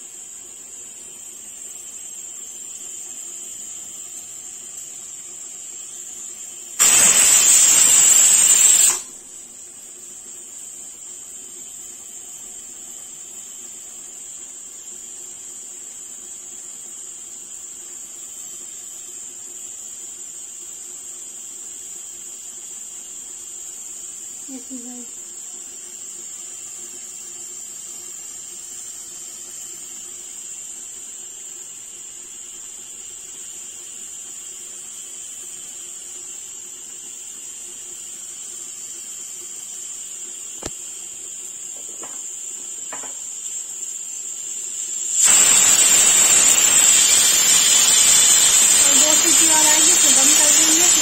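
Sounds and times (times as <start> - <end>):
pressure cooker hissing: 0.0 - 51.0
pressure cooker steam whistle: 0.0 - 51.0.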